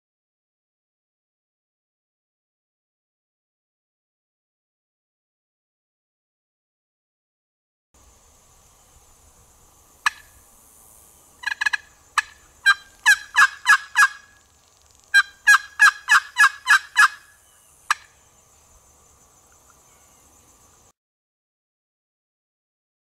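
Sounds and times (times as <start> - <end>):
box turkey call yelps: 10.0 - 10.3, 11.4 - 14.4, 15.1 - 17.3.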